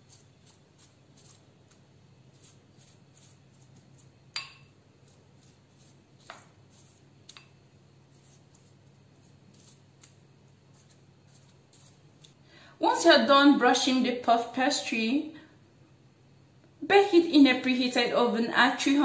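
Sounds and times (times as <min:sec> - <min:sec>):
faint steady hum: 0:00.0 - 0:19.0
glassware clinking: 0:04.4 - 0:04.7.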